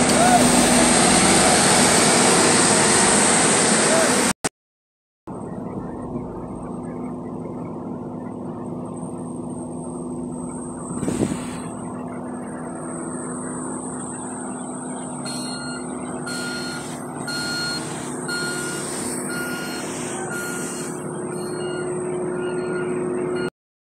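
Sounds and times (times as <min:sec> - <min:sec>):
road roller diesel engine: 0:00.0 - 0:04.3, 0:05.3 - 0:23.5
reversing alarm beeping: 0:05.4 - 0:23.5.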